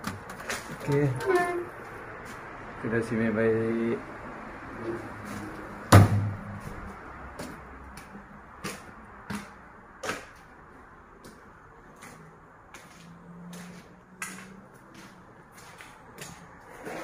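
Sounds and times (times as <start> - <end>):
loud sharp knock: 5.9 - 6.4.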